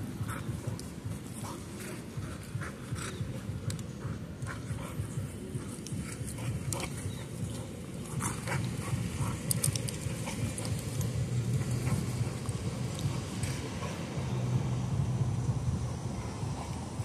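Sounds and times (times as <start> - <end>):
steady low rumble: 0.0 - 17.0
dog sounds: 1.4 - 14.4.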